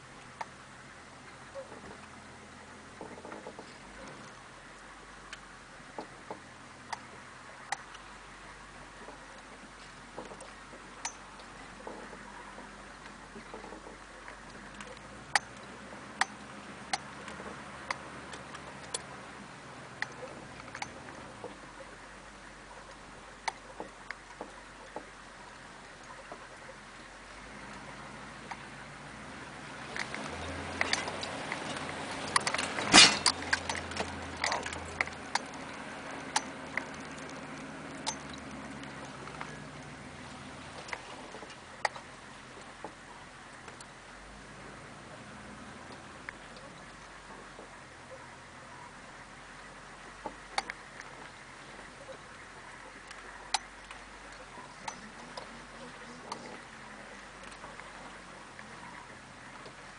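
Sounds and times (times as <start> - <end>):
diesel engine humming: 0.0 - 59.9.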